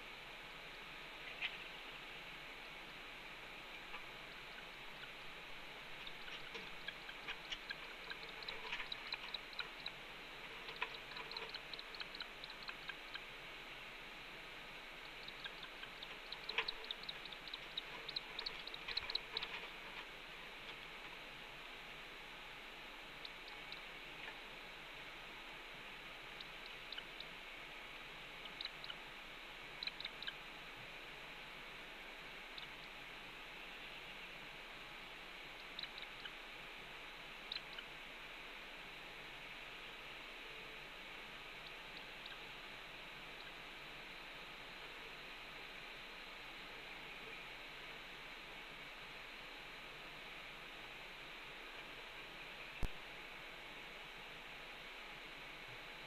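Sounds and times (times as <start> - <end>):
steady hiss: 0.0 - 56.0
faint high ticks: 6.0 - 10.0, 10.6 - 13.3, 15.0 - 21.2
twigs crackling and clicking: 6.0 - 13.0, 15.4 - 20.9.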